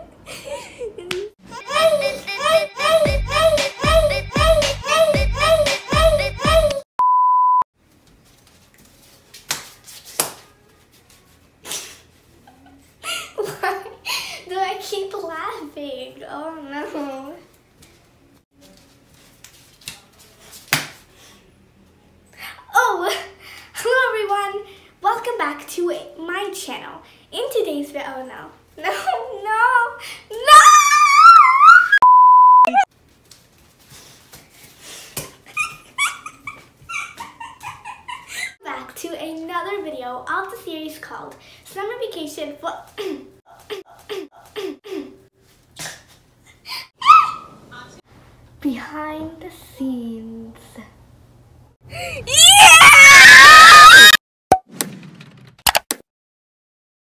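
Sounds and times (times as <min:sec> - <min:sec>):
girl giggling: 0:00.0 - 0:03.0, 0:12.4 - 0:14.2, 0:35.5 - 0:38.6
high test-tone beep: 0:07.0 - 0:07.6, 0:32.0 - 0:32.9.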